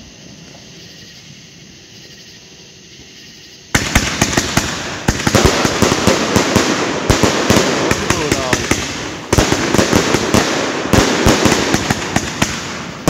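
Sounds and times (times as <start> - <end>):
fireworks crackling and popping: 3.7 - 13.0
fireworks shots: 3.7 - 13.0.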